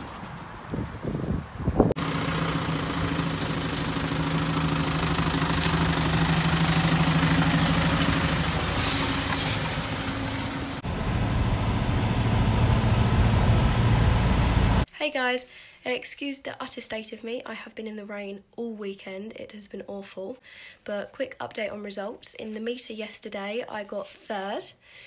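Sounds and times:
lorry diesel engine running: 2.0s - 14.9s
short hiss: 8.8s - 9.7s.

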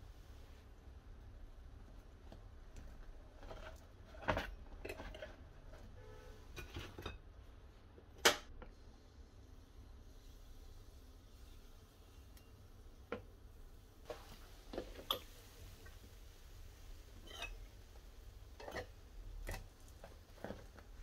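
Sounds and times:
cutlery scraping waffle iron: 3.4s - 7.2s, 17.2s - 17.7s, 18.6s - 19.7s.

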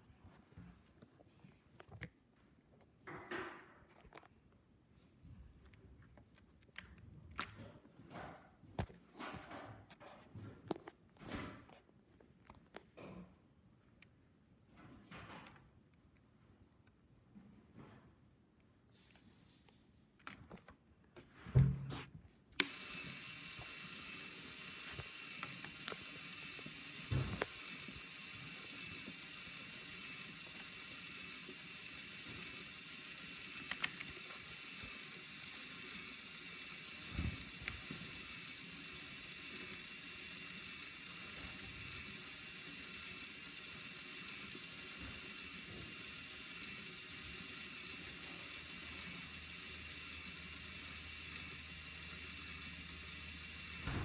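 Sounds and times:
electric motors whirring: 22.6s - 54.0s.

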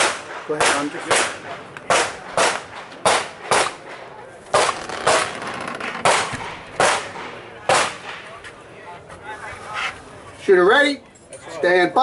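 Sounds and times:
gunshots in quick pairs: 0.0s - 8.2s.

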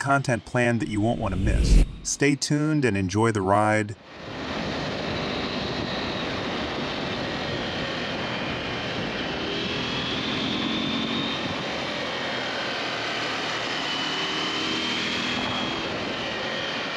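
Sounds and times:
wind rushing: 0.8s - 2.2s.

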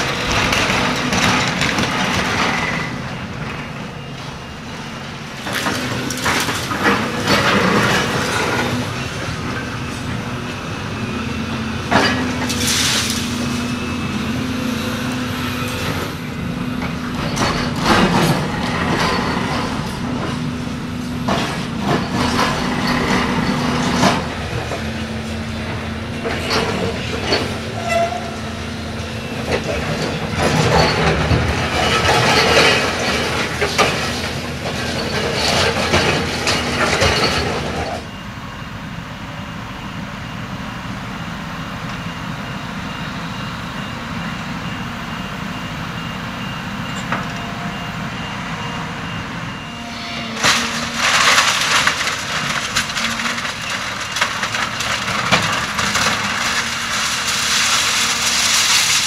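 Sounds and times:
diesel engine running: 0.0s - 59.0s
debris clattering: 29.4s - 38.0s, 50.4s - 59.0s
concrete cracking: 50.4s - 59.0s.

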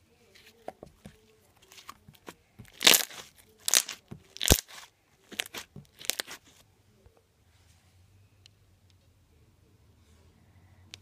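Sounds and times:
slime squishing crackles: 1.7s - 6.6s.

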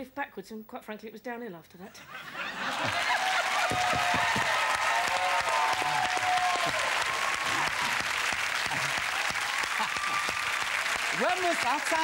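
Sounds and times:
audience applauding: 2.5s - 12.0s
voices cheering: 2.7s - 12.0s.

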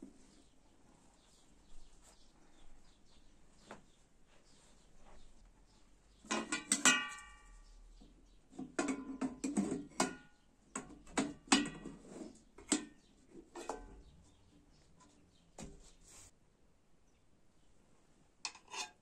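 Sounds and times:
pan lid clanking and scraping: 11.2s - 13.9s, 18.5s - 19.0s.

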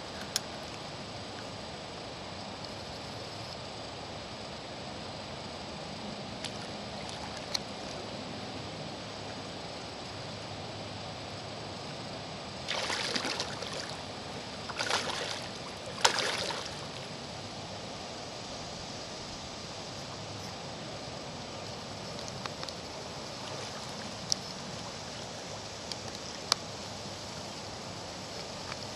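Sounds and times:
wind hiss: 0.0s - 28.9s
rippling water: 5.8s - 28.9s
fish splashing and thrashing: 12.7s - 17.0s.

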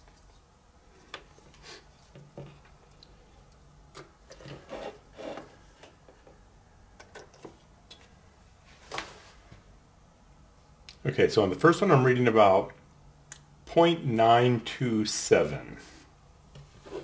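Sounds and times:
cables rubbing and dragging: 4.5s - 5.5s.

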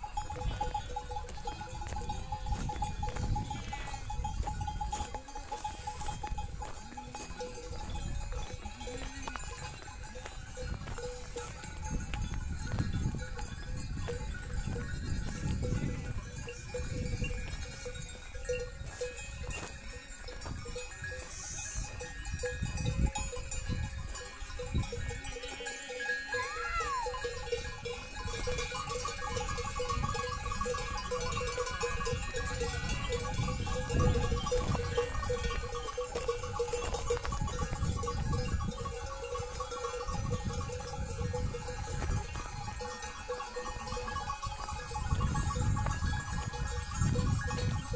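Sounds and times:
livestock bells ringing: 0.0s - 47.9s
sheep call: 25.8s - 27.3s.

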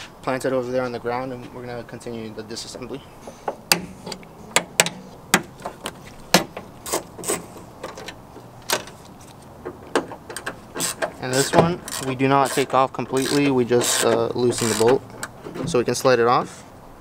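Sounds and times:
socket ratchet clicking: 10.0s - 15.4s.

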